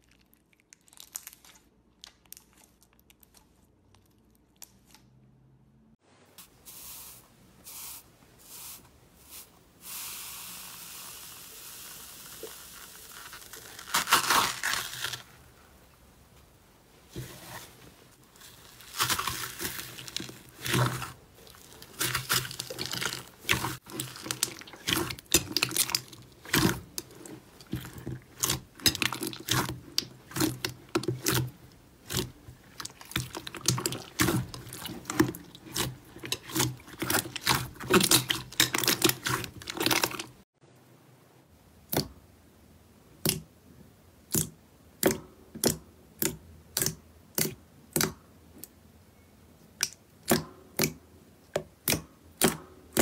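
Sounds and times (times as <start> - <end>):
slime kneading wet clicking: 43.2 - 43.5, 44.3 - 48.8, 49.8 - 53.0.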